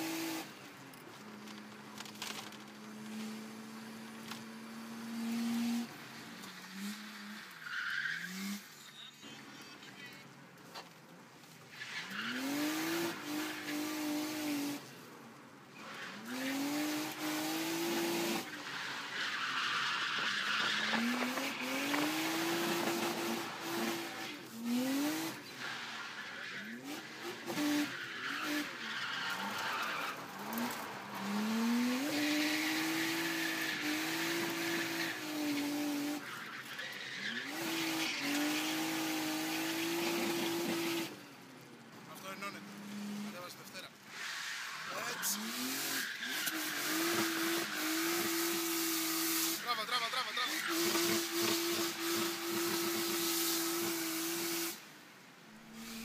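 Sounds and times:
car engine revving hard: 12.3 - 14.8, 16.2 - 18.5, 20.5 - 25.4, 45.3 - 49.6, 50.5 - 54.8
tyres squealing: 18.4 - 24.3, 25.5 - 39.0.

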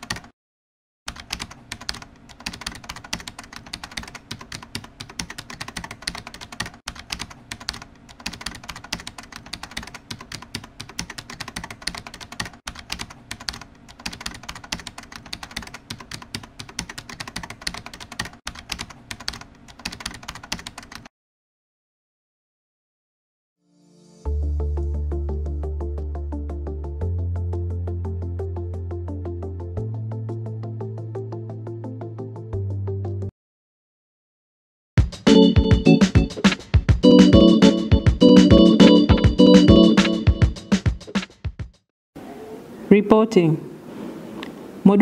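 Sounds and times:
computer keyboard typing: 0.0 - 0.3, 1.1 - 21.1.

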